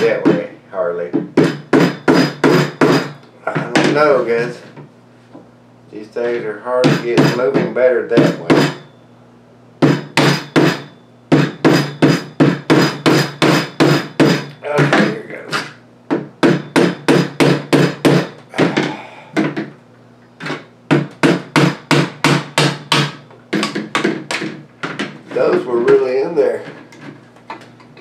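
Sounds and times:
mallet tapping metal punch: 1.1s - 3.2s, 6.8s - 8.9s, 9.8s - 15.2s, 16.1s - 19.7s, 20.4s - 25.0s.

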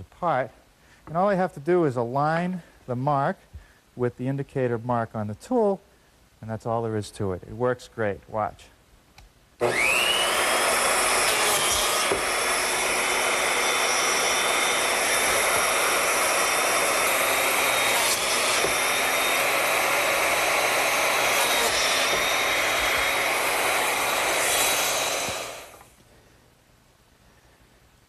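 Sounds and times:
biscuit joiner whining: 9.6s - 26.0s.

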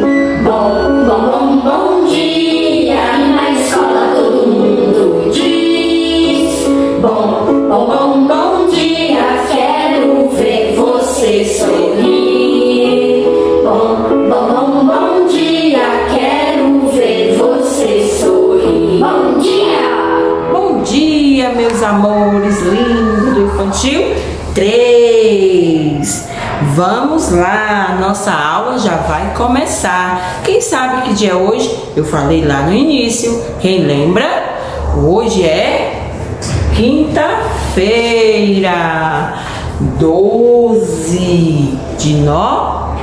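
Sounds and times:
woman singing: 0.0s - 24.7s.

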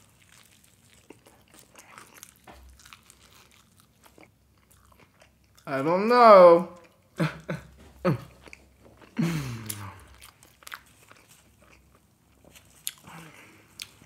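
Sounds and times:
biscuit tearing crackles: 0.0s - 4.1s
man humming: 9.2s - 10.1s
breathy vocal sound: 9.2s - 10.2s.

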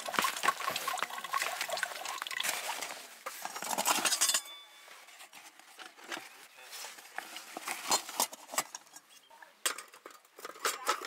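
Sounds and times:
metal cookware clattering: 3.3s - 4.7s, 7.6s - 11.0s.

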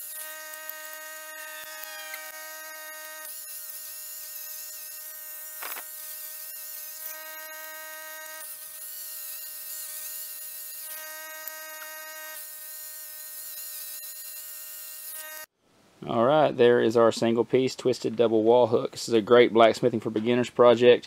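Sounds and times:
angle grinder whine: 0.0s - 15.5s.

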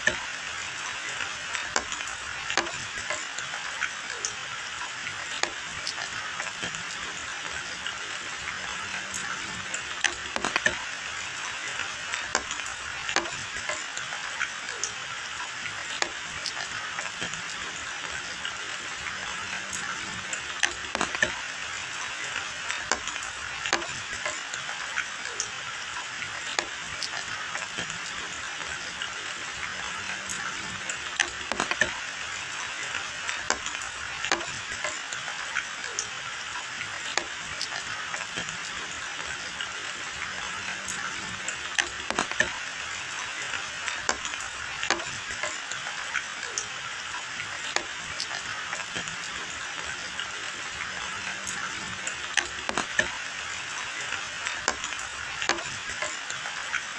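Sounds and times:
rain falling on leaves: 0.0s - 56.9s
raindrops tapping: 0.0s - 56.9s.

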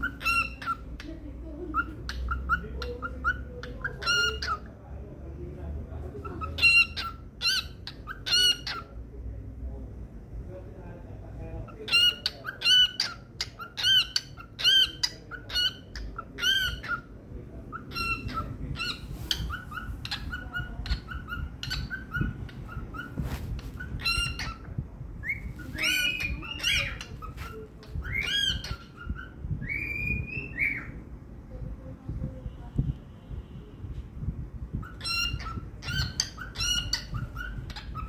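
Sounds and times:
cockatiel whistling chirps: 34.8s - 38.0s.

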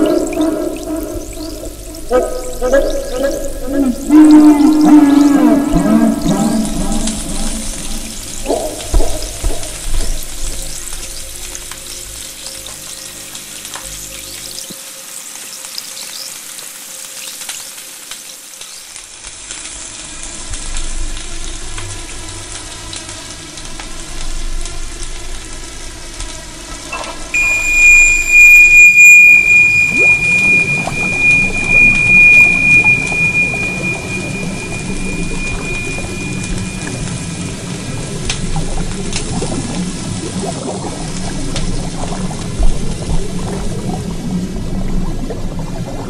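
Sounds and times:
fizzing crackling sizzle: 0.0s - 44.4s
steady high tone: 27.0s - 38.4s
faint drone: 27.0s - 39.5s.

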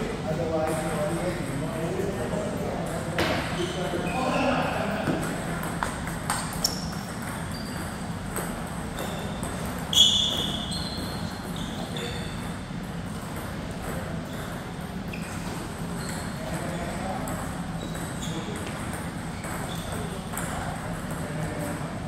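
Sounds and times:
low hum in a large room: 0.0s - 22.0s
ball bounces and pings: 5.1s - 12.6s.

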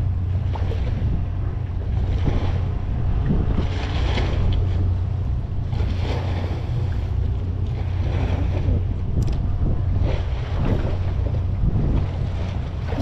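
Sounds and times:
steady low hum: 0.0s - 13.0s
water washing around boat: 0.0s - 13.0s
wind buffeting microphone: 0.0s - 13.0s.

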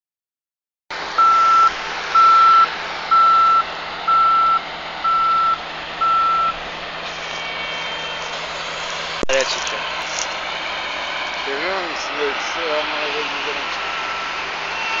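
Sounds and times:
combine harvester running: 0.9s - 15.0s
backup alarm beeping: 1.2s - 6.6s.

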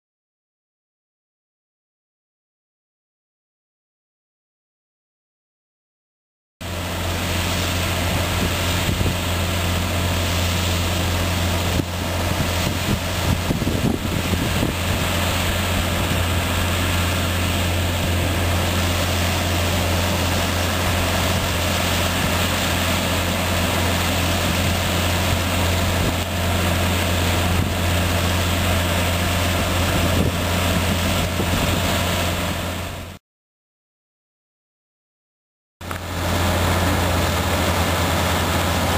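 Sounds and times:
harvester machinery noise: 6.6s - 33.2s, 35.8s - 38.9s
low engine drone: 6.6s - 33.2s, 35.8s - 38.9s.

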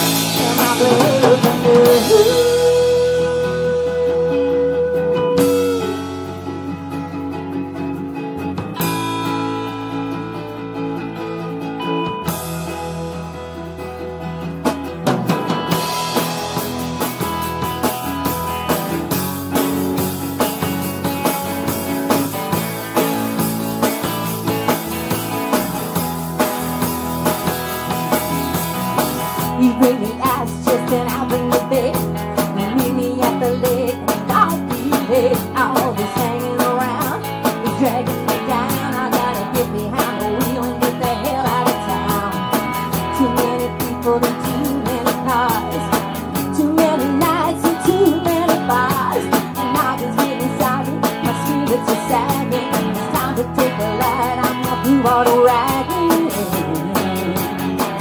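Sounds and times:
woman singing: 0.0s - 6.3s, 29.4s - 58.0s
drum kit beat: 0.0s - 10.7s, 11.6s - 58.0s
acoustic guitar: 0.0s - 58.0s
electric guitar: 0.0s - 58.0s.

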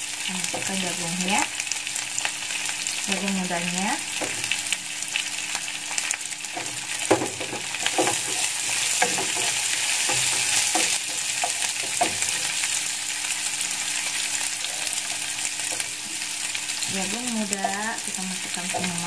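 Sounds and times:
vegetables sizzling in hot oil: 0.0s - 19.0s
spatula knocking and scraping pan: 4.1s - 4.6s, 6.5s - 12.8s.

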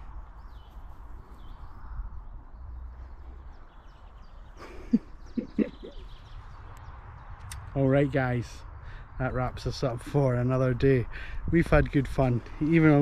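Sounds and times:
wind buffeting microphone: 0.0s - 4.5s, 5.4s - 13.0s
faint bird chirps: 0.0s - 7.7s.

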